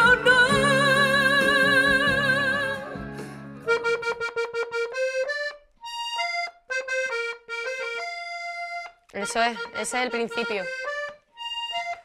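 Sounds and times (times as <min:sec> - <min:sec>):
woman singing with vibrato: 0:00.0 - 0:03.1
piano accordion phrase: 0:02.9 - 0:12.0.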